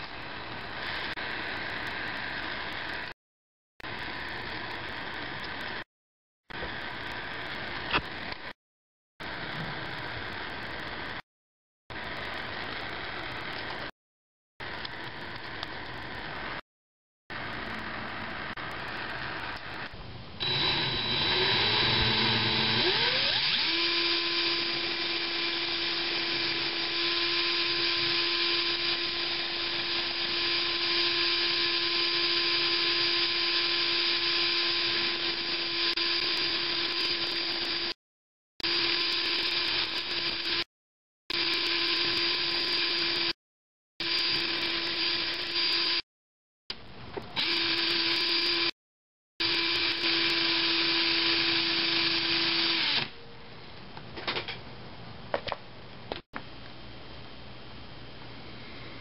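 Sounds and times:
cordless drill whining: 0:20.4 - 0:38.0, 0:38.6 - 0:40.6, 0:41.4 - 0:43.4, 0:44.0 - 0:46.0, 0:47.4 - 0:48.7, 0:49.4 - 0:53.1.

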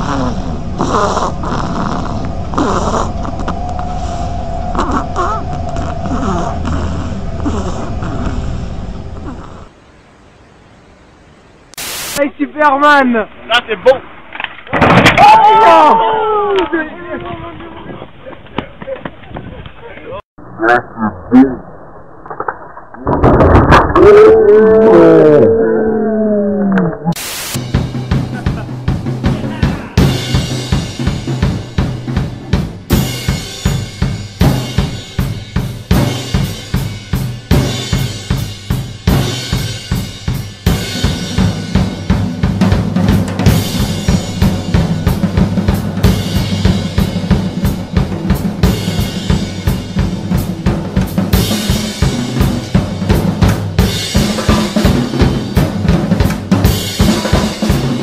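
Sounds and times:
acoustic drum kit playing fast beat: 0:27.5 - 0:58.0.

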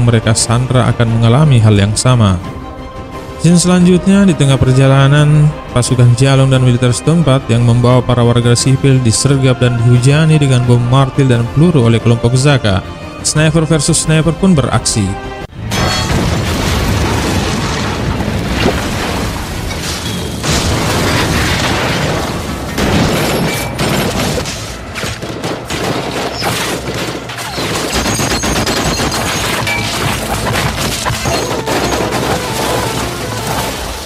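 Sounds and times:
bursts of gunfire: 0:20.4 - 0:33.8.

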